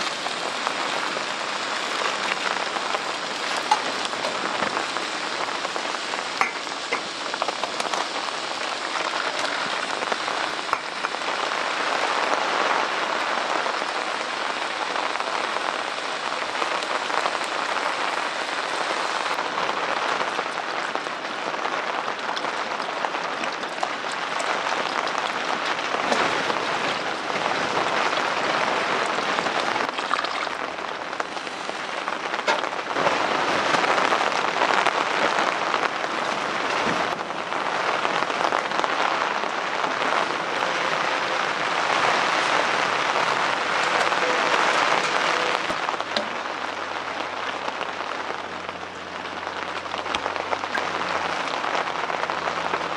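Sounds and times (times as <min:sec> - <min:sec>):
food sizzling in pot: 0:03.6 - 0:11.2.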